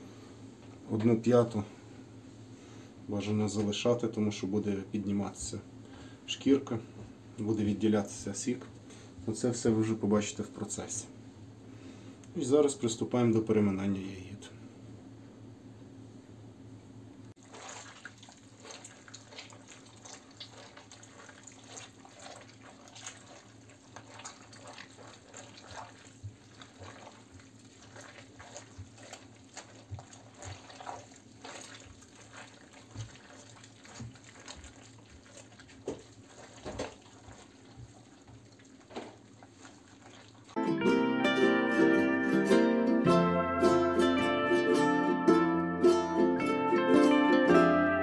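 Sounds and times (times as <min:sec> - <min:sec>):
grapes squelching by hand: 0:17.4 - 0:40.6.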